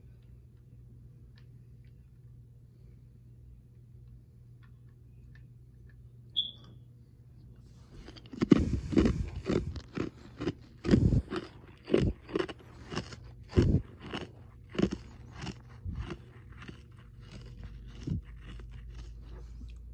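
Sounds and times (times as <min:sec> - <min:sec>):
person crunching ice: 0:08.0 - 0:19.3.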